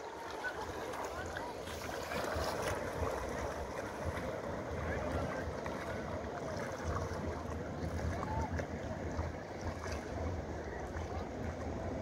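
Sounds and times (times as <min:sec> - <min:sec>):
water lapping around boat: 0:00.0 - 0:12.0.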